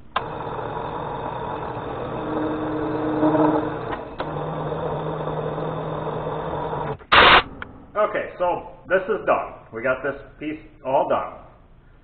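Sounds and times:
machine spindle motor hum: 0:00.0 - 0:08.3.

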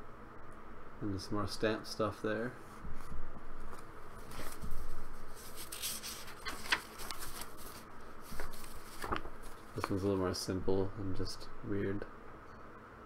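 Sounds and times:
paper pages rustling: 0:02.8 - 0:10.4.

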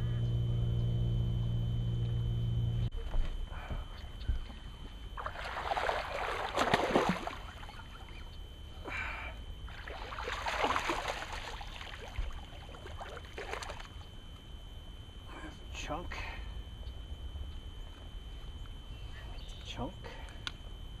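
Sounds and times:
fish splashing in water: 0:05.2 - 0:08.2, 0:09.7 - 0:14.0.

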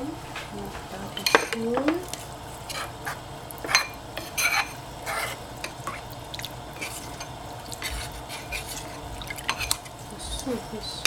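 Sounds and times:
metal spoon scraping bowl: 0:02.7 - 0:06.1, 0:06.8 - 0:10.7.

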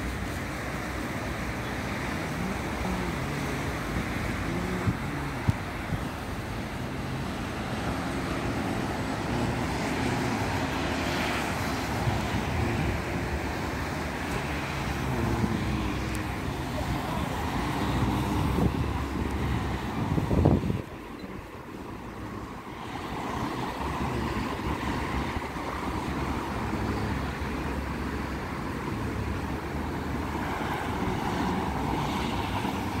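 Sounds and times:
passing cars: 0:00.0 - 0:33.0
wind buffeting microphone: 0:14.1 - 0:27.2.

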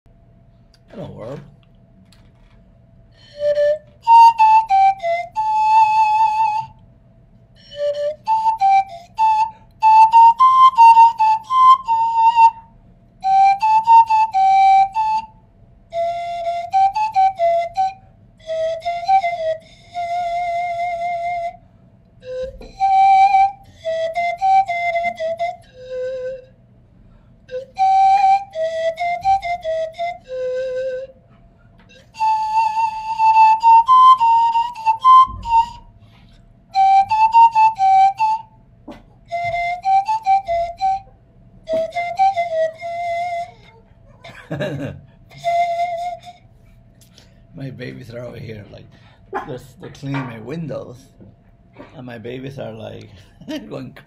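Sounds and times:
pan flute melody: 0:03.1 - 0:06.9, 0:07.6 - 0:26.8, 0:27.4 - 0:47.2.

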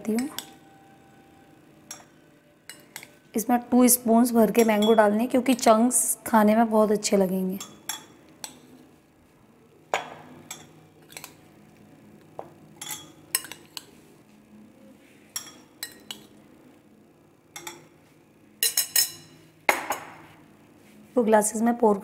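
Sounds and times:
spoon clinking on glass: 0:00.1 - 0:00.6, 0:01.9 - 0:03.2, 0:04.6 - 0:05.1, 0:07.6 - 0:08.6, 0:10.0 - 0:11.4, 0:12.8 - 0:13.9, 0:15.3 - 0:16.3, 0:17.6 - 0:17.9, 0:18.6 - 0:20.0.

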